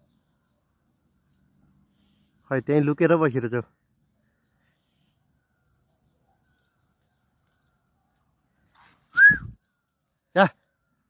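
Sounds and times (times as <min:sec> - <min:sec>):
short whistled note: 0:09.1 - 0:09.6.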